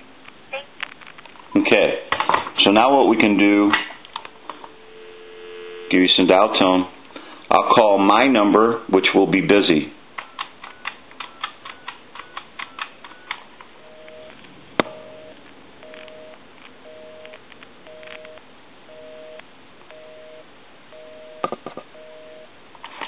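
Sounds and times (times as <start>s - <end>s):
telephone busy signal: 4.6s - 6.0s, 13.1s - 22.5s
touch-tone dialing beeps: 10.2s - 14.4s, 15.0s - 22.5s.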